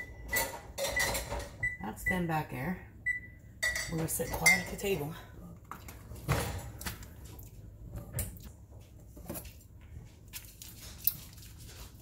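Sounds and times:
plastic rustling: 0:09.2 - 0:12.0.

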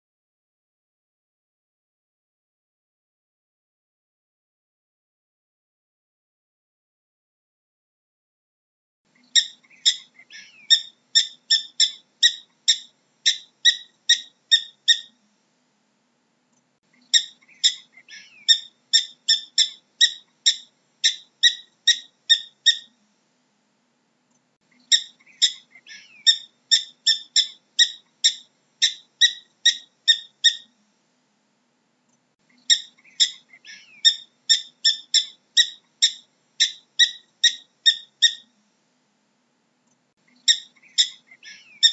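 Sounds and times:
prairie dog chirping barks: 0:09.4 - 0:15.2, 0:17.1 - 0:22.9, 0:24.9 - 0:30.7, 0:32.6 - 0:38.5, 0:40.5 - 0:41.9.

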